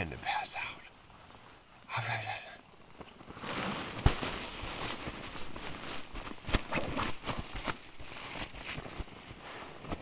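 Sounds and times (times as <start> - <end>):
tent fabric rustling: 2.8 - 10.0.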